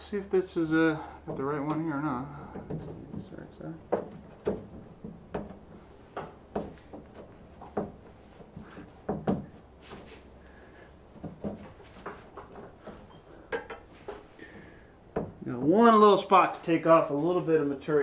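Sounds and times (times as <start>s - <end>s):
hood vent knocking against metal: 2.5s - 9.5s.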